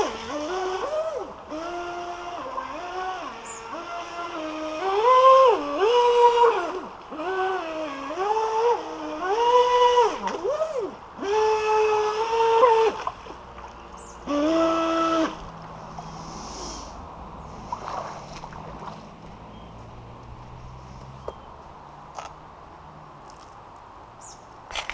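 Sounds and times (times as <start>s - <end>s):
electric boat motor whining: 0.0s - 21.6s
hiss of moving water: 15.9s - 19.1s.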